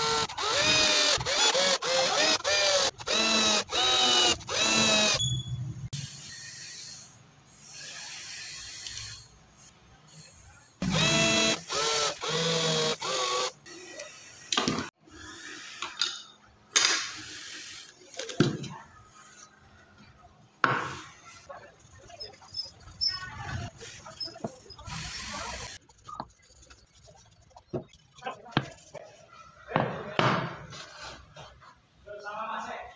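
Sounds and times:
cordless drill whining: 0.0 - 5.2, 10.8 - 14.4.

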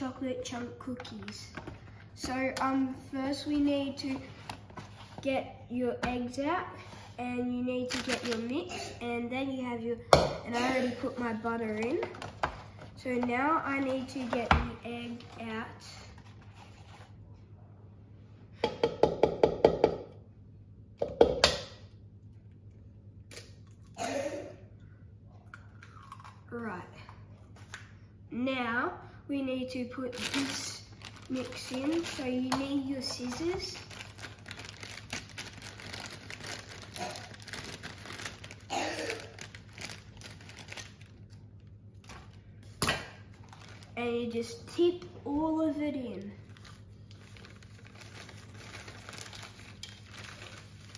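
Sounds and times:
plastic bag crinkling: 7.8 - 8.7, 30.0 - 41.4, 43.3 - 44.0, 46.4 - 50.9.

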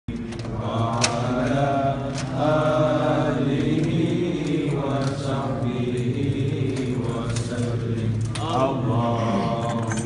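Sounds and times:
men chanting: 0.1 - 10.0.

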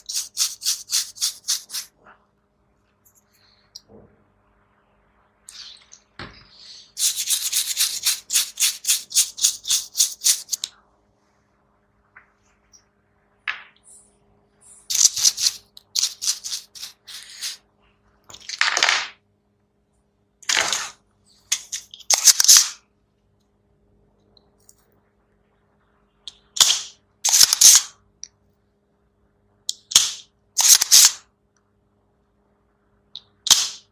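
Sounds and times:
paintbrush scrubbing circuit board: 0.0 - 2.0, 6.9 - 10.7, 14.7 - 17.7.

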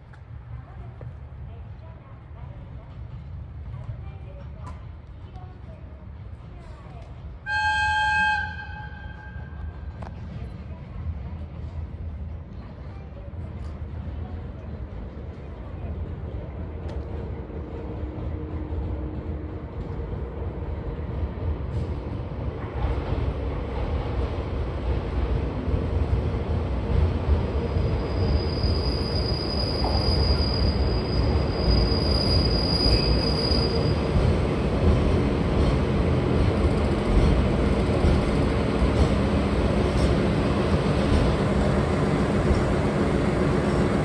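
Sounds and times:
train rumble: 0.0 - 44.0
train wheels squealing: 27.7 - 34.2.

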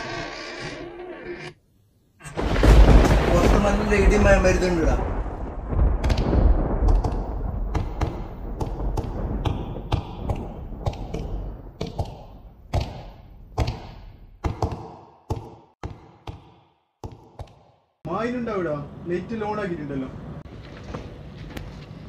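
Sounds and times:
low rumble of thunder: 2.4 - 11.8.

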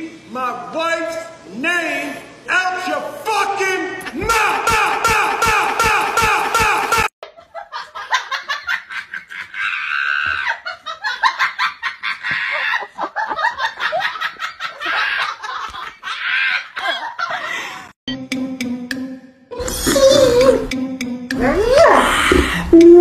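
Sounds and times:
person laughing hard: 6.4 - 17.7.

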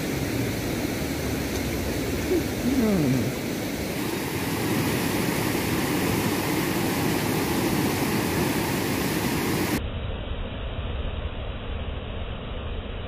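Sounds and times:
river water rushing: 0.0 - 9.8.

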